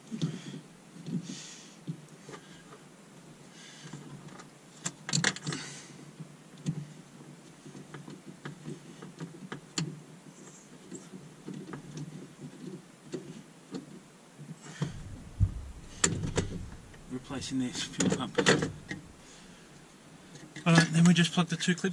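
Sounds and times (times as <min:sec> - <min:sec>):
metallic rattling: 0:14.7 - 0:19.8.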